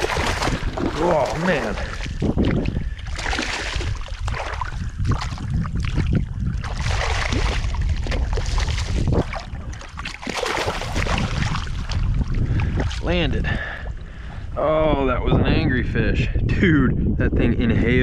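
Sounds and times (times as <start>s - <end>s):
fish splashing in water: 0.0s - 13.0s
wind buffeting microphone: 0.0s - 18.0s.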